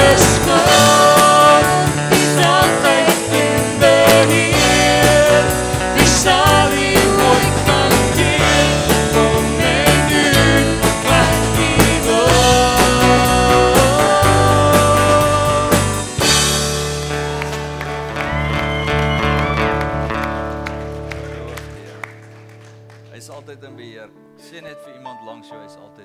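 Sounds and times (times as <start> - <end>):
person singing a worship song: 0.0 - 16.4
band with drums: 0.0 - 20.1
bass: 0.0 - 23.8.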